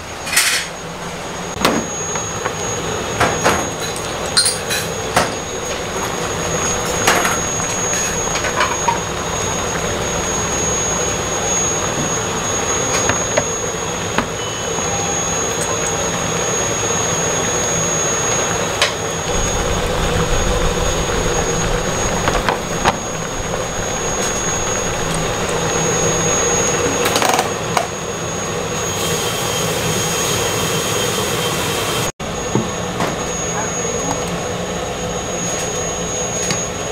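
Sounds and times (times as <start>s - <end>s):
mechanical roar with high whine: 0.0s - 36.9s
dishes and utensils clinking: 3.8s - 5.3s.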